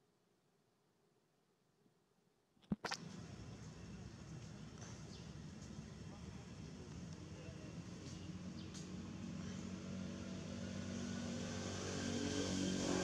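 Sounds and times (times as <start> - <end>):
vehicle engine passing by: 8.3 - 13.0.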